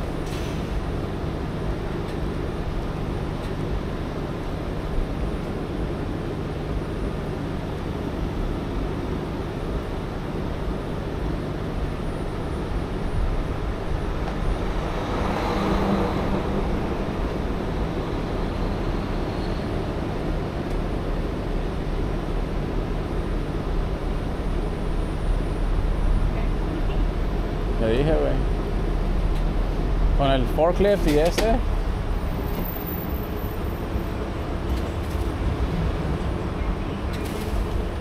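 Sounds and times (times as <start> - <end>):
vehicle passing: 13.8 - 19.3, 34.0 - 38.0.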